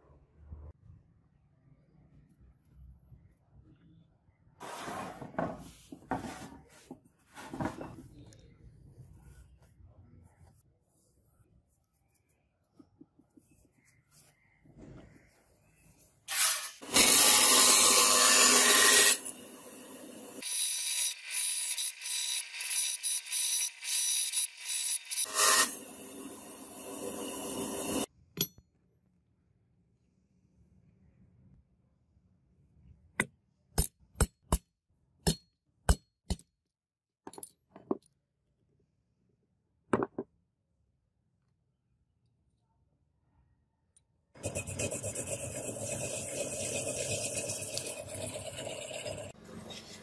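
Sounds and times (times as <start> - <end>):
scroll saw cutting metal: 16.3 - 28.1.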